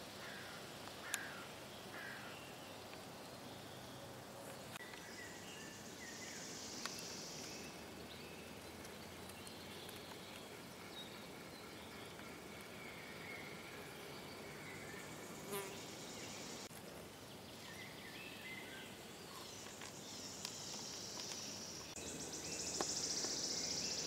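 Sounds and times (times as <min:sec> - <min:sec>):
steady background hiss: 0:00.0 - 0:24.0
small birds chirping: 0:00.3 - 0:16.7, 0:17.3 - 0:24.0.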